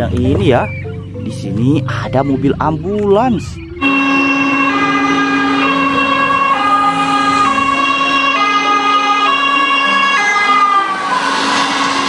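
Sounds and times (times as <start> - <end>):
two-tone ambulance siren: 3.8 - 12.0.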